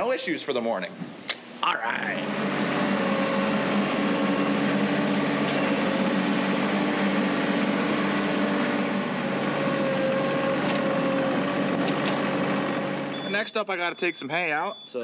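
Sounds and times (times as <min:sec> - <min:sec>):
tractor engine running: 0:02.2 - 0:13.3.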